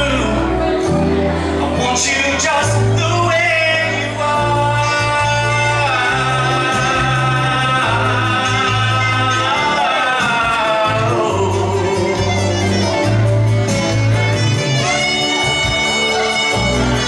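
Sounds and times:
man singing a pop ballad: 0.0s - 1.0s, 1.6s - 13.1s
backing track with bass: 0.0s - 17.0s.

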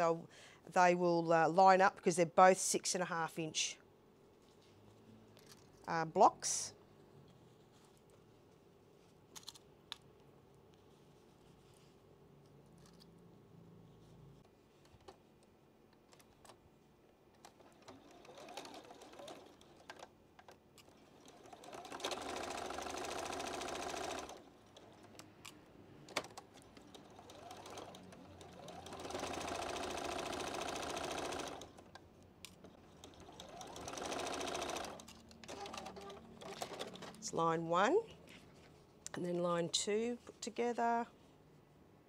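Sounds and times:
sewing machine stitching: 17.4s - 20.1s, 20.9s - 25.3s, 26.1s - 31.9s, 32.7s - 37.2s.

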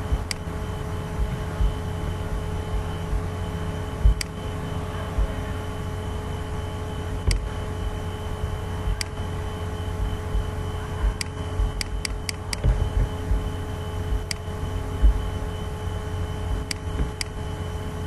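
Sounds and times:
low hum and hiss: 0.0s - 18.0s
computer mouse clicking: 0.2s - 0.5s, 4.1s - 4.4s, 9.0s - 9.2s, 11.2s - 12.7s, 14.3s - 14.5s, 16.7s - 17.4s.

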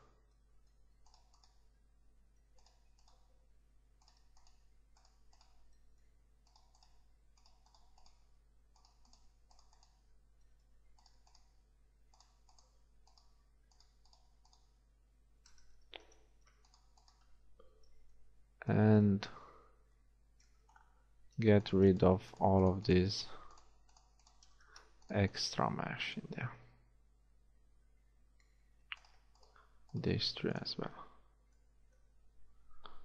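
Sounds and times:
low steady hum: 0.0s - 33.0s
keyboard and mouse clicking: 0.3s - 1.8s, 2.4s - 3.3s, 4.0s - 14.8s, 15.4s - 18.1s, 21.8s - 25.2s, 28.4s - 30.1s.

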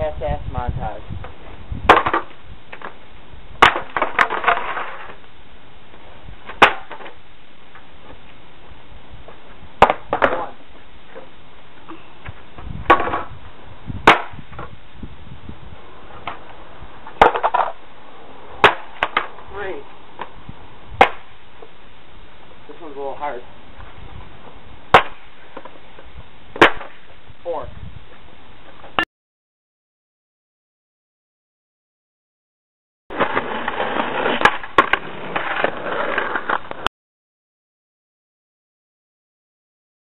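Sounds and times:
skateboards clattering on concrete: 1.9s - 3.0s, 3.6s - 5.2s, 6.5s - 7.2s, 9.8s - 11.3s, 12.9s - 13.3s, 16.1s - 17.8s, 18.6s - 19.5s, 33.1s - 36.9s.

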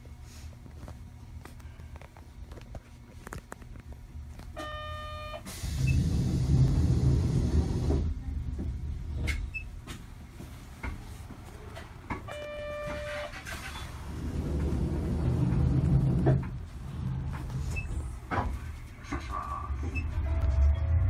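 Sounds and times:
streetcar rumble: 5.4s - 21.0s
loud hissing rumble: 5.5s - 9.0s
short buzzer tone: 12.3s - 13.4s.

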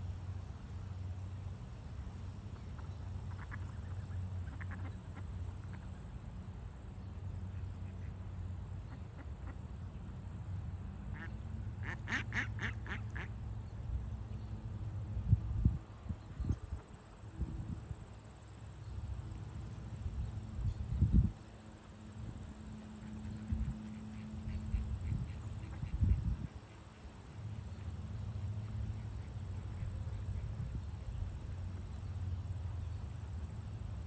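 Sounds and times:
low steady rumble: 0.0s - 34.0s
ducks quacking: 11.2s - 13.3s.

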